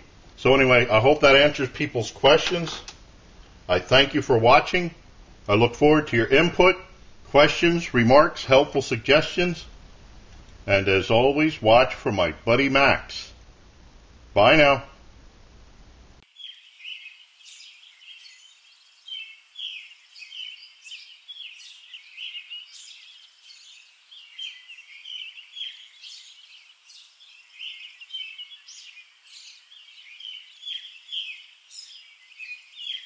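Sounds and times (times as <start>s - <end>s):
songbirds chirping and singing: 16.2s - 33.0s.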